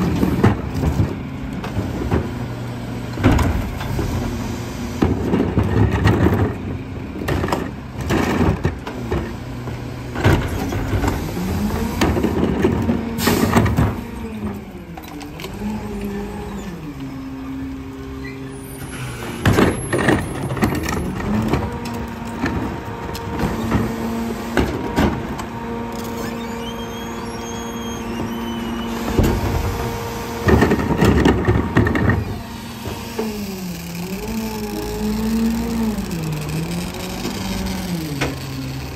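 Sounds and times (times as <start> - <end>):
garbage truck diesel engine revving: 0.0 - 38.9
plastic carts clanking against hopper: 5.0 - 6.6, 7.2 - 9.4, 18.8 - 25.4, 28.0 - 38.9.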